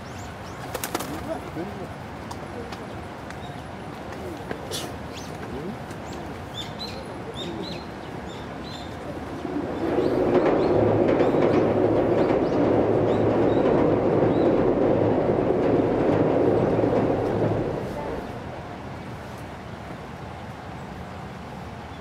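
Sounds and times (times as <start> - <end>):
train rumbling over steel bridge: 1.3 - 22.0
birds chirping: 2.4 - 18.5.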